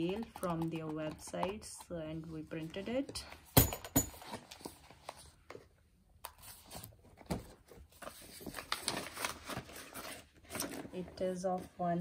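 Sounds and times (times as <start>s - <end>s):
paper sheets rustling: 6.4s - 12.0s.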